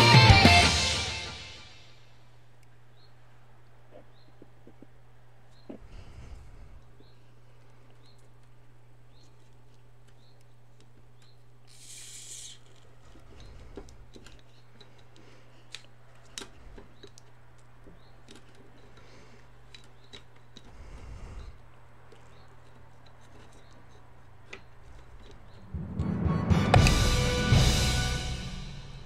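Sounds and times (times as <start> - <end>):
toothbrush scraping bottle cap: 11.7 - 13.0.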